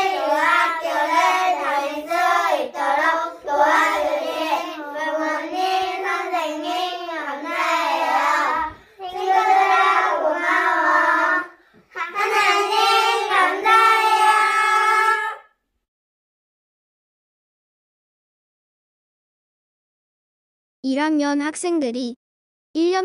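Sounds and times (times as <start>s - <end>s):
children singing together: 0.0s - 15.5s.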